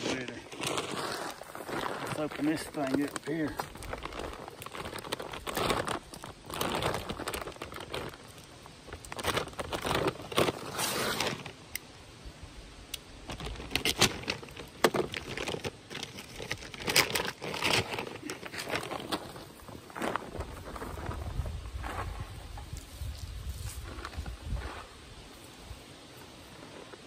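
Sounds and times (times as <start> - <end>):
plastic bag crinkling: 0.0 - 11.6, 13.2 - 21.4.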